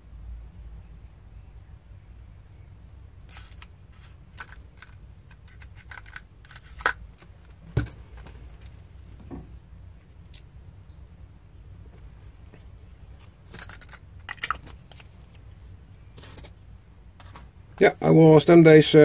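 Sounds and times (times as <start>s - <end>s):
metal punches clinking in case: 3.3s - 8.0s, 13.5s - 14.6s.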